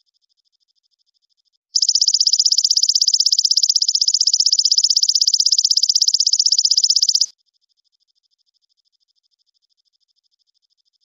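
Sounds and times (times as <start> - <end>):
fainter pulsed trill: 1.8 - 7.3
high rapid bird trill: 1.8 - 7.3.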